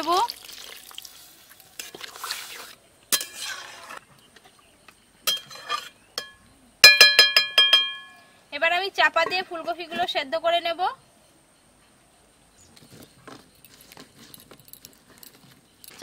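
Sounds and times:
water hissing in hot wok: 0:00.0 - 0:04.0
spatula stirring and knocking wok: 0:03.1 - 0:04.1
ringing metal clinks: 0:06.2 - 0:08.3.

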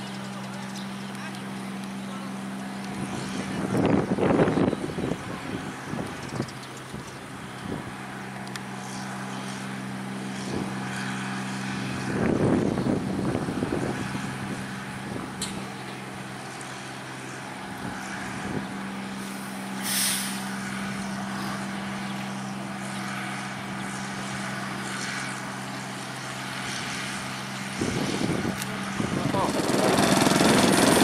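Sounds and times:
combine harvester diesel engine: 0:00.0 - 0:31.0
short hiss: 0:19.2 - 0:20.5.

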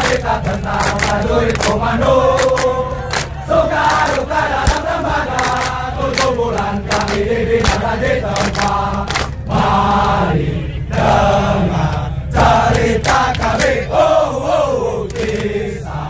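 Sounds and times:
soldiers chanting in unison: 0:00.0 - 0:16.0.

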